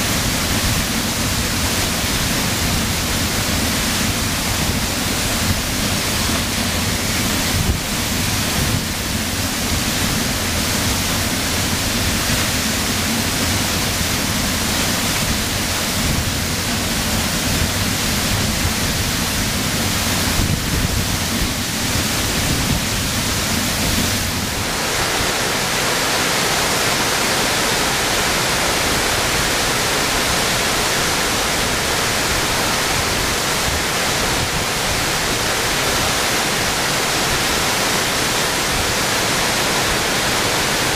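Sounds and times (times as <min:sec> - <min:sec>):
waterfall pouring onto rocks: 0:00.0 - 0:40.9.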